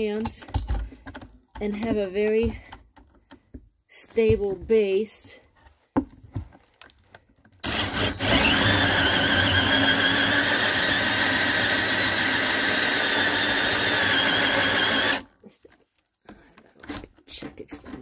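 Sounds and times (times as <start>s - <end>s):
drill hole saw cutting wood: 7.6s - 15.3s.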